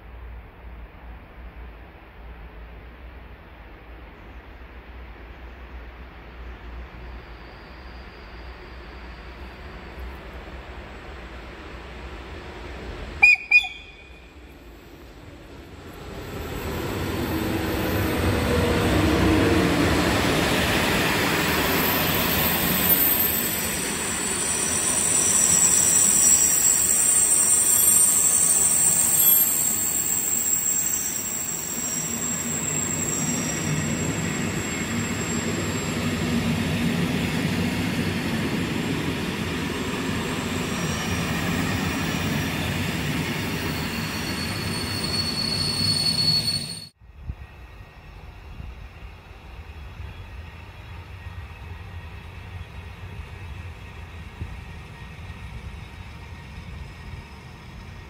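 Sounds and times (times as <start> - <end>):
train rumbling on track: 0.0 - 58.0
high-pitched wheel squeal: 21.7 - 36.1, 40.5 - 47.0.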